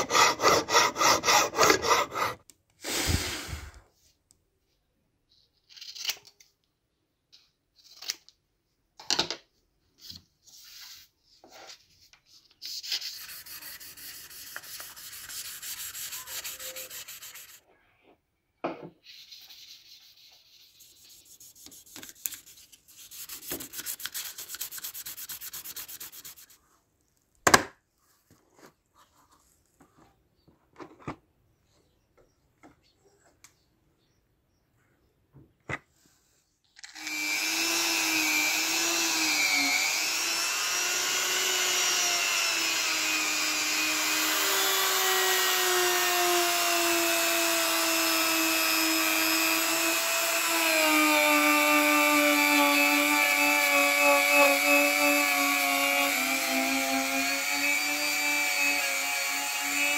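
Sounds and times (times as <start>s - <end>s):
metal rasping on sandpaper: 0.0s - 2.4s, 12.6s - 17.6s, 19.0s - 26.7s.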